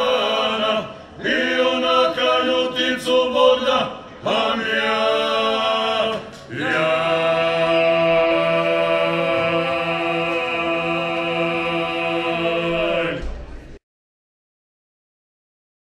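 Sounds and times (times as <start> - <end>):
men singing in harmony: 0.0 - 13.3.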